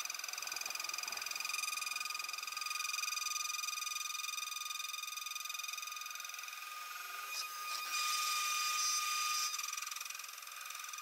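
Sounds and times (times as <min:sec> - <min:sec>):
router spindle whining cutting metal: 0:06.3 - 0:11.0.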